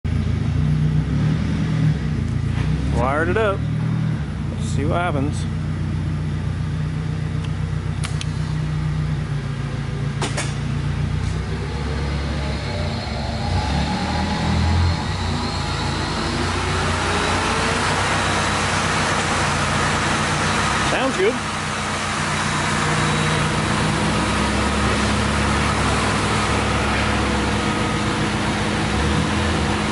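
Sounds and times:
motor whine rising in pitch: 10.8s - 29.9s.

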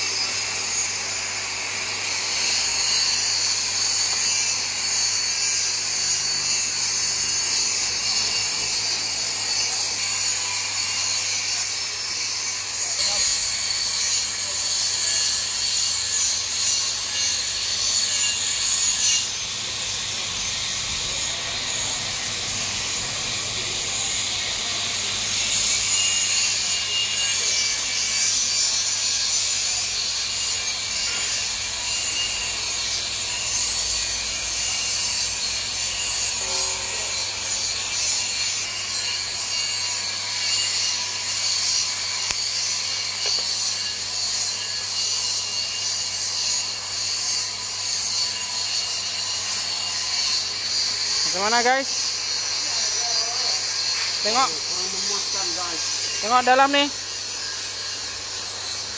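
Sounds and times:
welding arc hissing: 49.4s - 58.9s.

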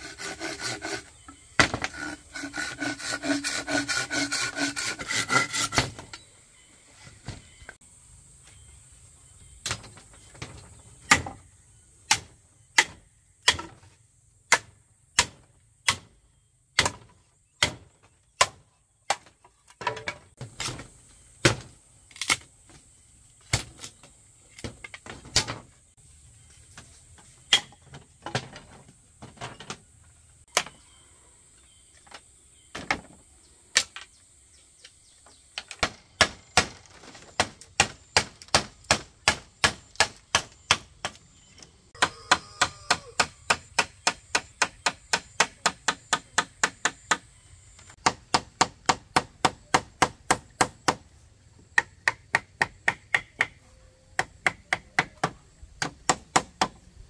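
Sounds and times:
machete chopping bamboo: 0.1s - 6.0s, 9.6s - 11.4s, 12.0s - 13.9s, 14.5s - 22.5s, 23.5s - 25.6s, 27.5s - 28.6s, 30.5s - 30.8s, 35.6s - 41.2s, 42.0s - 47.2s, 48.0s - 51.1s, 51.7s - 53.6s, 54.2s - 56.8s.

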